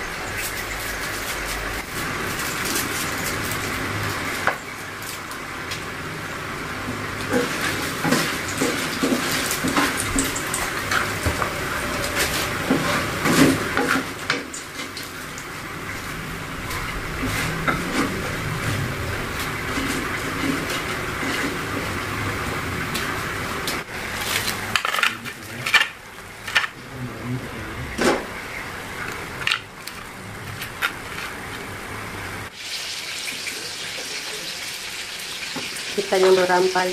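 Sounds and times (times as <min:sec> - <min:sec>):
fish sizzling in hot oil: 0:32.5 - 0:36.9.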